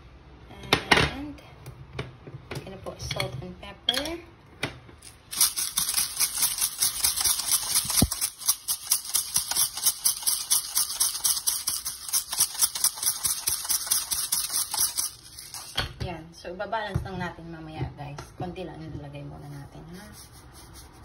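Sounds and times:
spice grinder grinding: 5.0 - 15.8.

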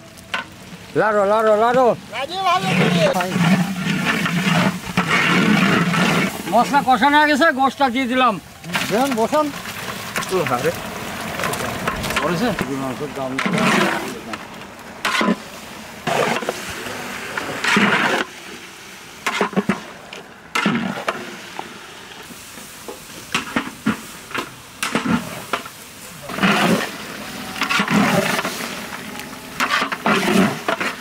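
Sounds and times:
frying hiss: 0.0 - 31.0
ladle sloshing and scraping in pot: 2.7 - 6.8, 8.6 - 12.7, 13.3 - 18.4, 23.2 - 31.0.

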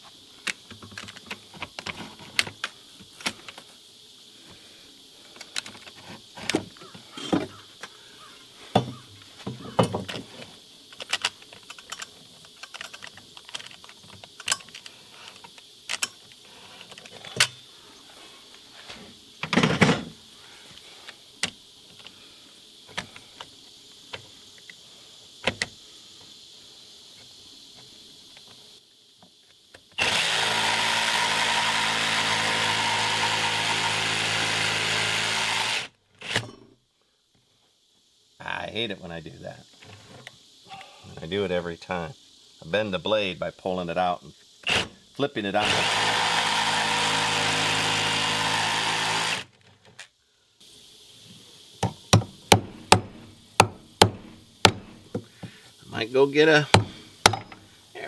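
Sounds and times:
jigsaw handling clicks and knocks: 11.0 - 16.2
jigsaw running: 30.0 - 36.4, 45.6 - 49.5.

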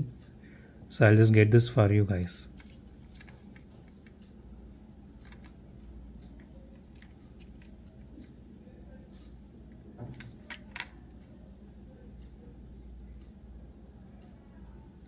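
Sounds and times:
clicks and taps of toy car: 5.2 - 5.6, 10.0 - 11.2.

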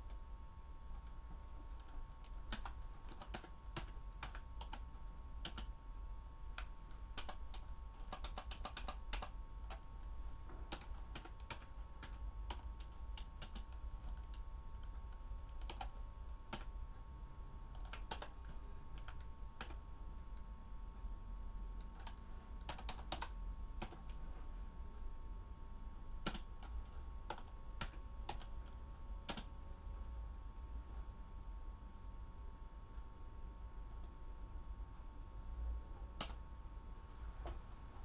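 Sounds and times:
steady low hum: 0.0 - 38.0
typing on computer keyboard: 1.8 - 5.7, 6.6 - 9.9, 10.7 - 16.8, 17.7 - 19.8, 21.8 - 24.2, 26.2 - 29.5.

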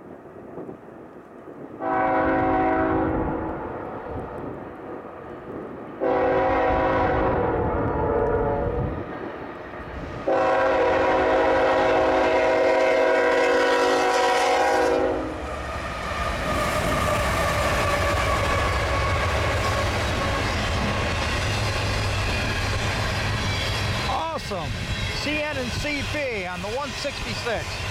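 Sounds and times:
train passing at speed: 0.0 - 27.9
locomotive air horn blasts: 1.8 - 3.5, 6.0 - 8.8, 10.3 - 15.4.

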